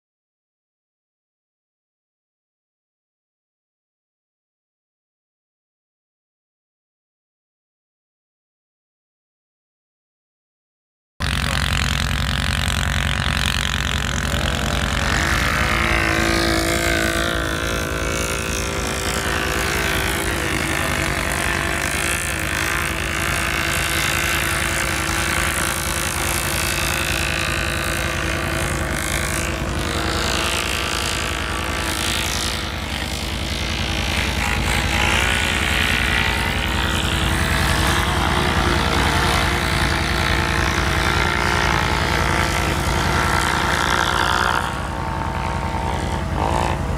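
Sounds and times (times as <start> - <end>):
atv engine running: 11.2 - 46.9.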